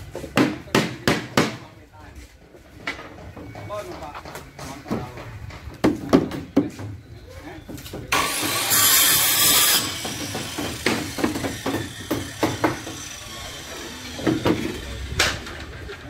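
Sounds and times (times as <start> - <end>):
hammer knocking on wood: 0.4 - 1.6, 10.0 - 13.0.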